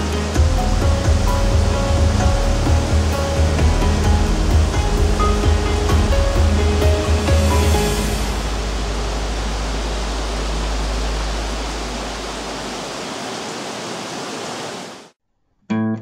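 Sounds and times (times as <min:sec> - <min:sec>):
heavy rain: 0:00.0 - 0:15.2
low rumble: 0:00.4 - 0:12.9.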